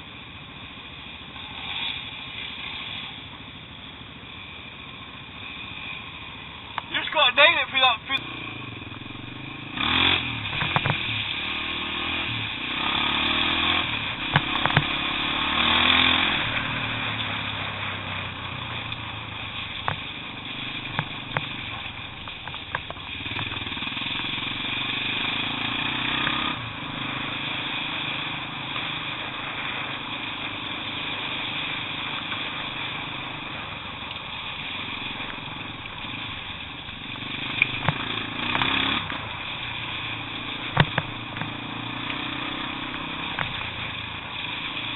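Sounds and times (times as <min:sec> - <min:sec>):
motorcycle engine revving: 0:05.3 - 0:44.9
sharp knocks: 0:14.2 - 0:15.0, 0:40.8 - 0:41.5.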